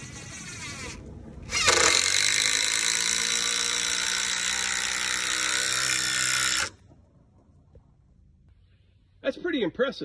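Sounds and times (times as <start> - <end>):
impact driver driving screw into wood: 1.5 - 6.8.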